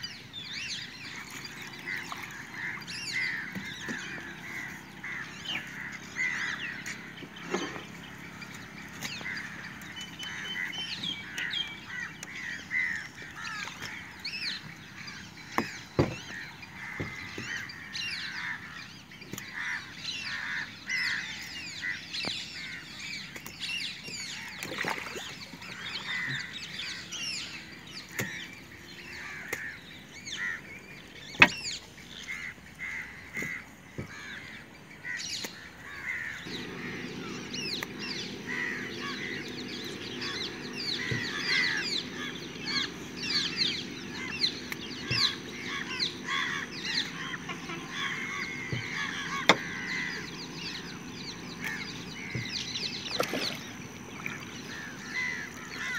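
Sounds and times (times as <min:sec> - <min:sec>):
birds chattering and squawking: 0:00.0 - 0:55.9
steady low hum: 0:00.0 - 0:55.9.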